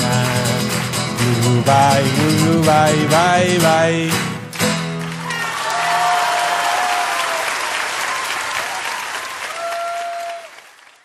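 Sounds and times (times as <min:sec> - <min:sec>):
audience applauding: 0:04.4 - 0:11.0
long high cheer: 0:05.1 - 0:11.0.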